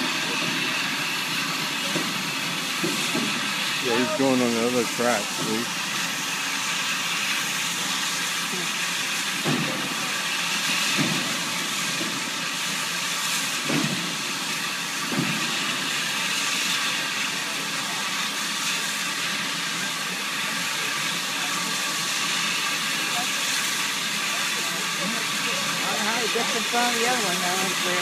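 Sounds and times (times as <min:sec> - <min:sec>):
steam locomotive hissing: 0:00.0 - 0:28.0.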